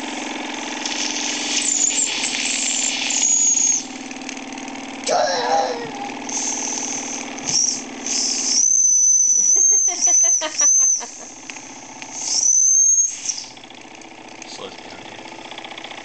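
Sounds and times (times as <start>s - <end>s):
small steam engine running: 0.0s - 16.0s.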